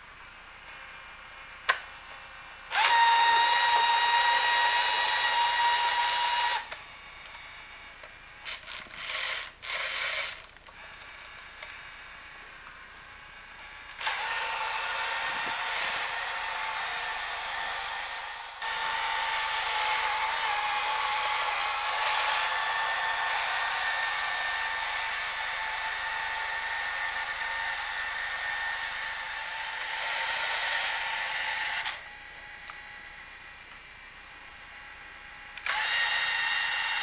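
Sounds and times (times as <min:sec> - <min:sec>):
toy truck motor whining: 0:02.7 - 0:12.1, 0:13.4 - 0:32.1, 0:35.6 - 0:37.0.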